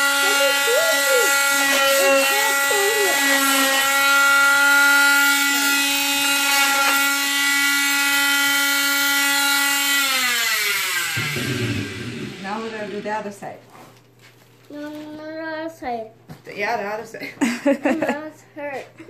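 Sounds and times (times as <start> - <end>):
cast saw high-pitched hum: 0.0 - 13.4.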